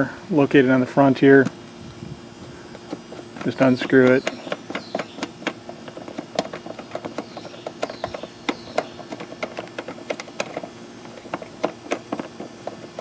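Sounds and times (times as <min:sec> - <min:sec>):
plastic knob being unscrewed: 0:02.7 - 0:13.0.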